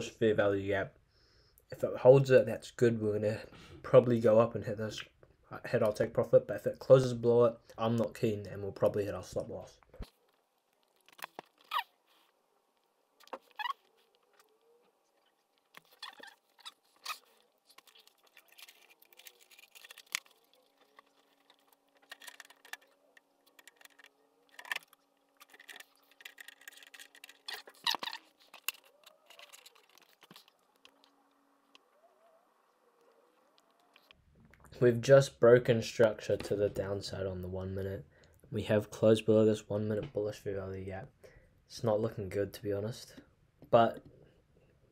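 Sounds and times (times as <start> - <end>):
small rustles: 9.2 - 34.7
faint irregular clicks: 9.8 - 34.8.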